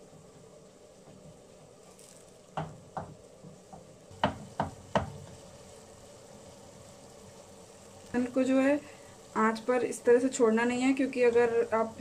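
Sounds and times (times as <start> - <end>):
spoon knocking and scraping a pan: 2.0 - 5.4.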